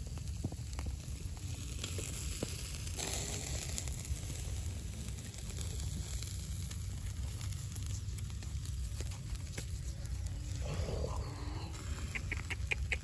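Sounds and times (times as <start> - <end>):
coals and fat crackling: 0.0 - 13.0
fat hissing: 1.9 - 13.0
low rumble: 2.6 - 12.4.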